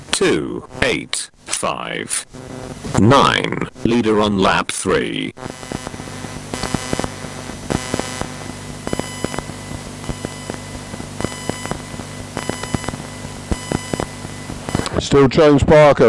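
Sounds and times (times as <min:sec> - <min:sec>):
electrical hum and hiss: 0:00.0 - 0:16.0
sharp clicks: 0:05.5 - 0:14.9.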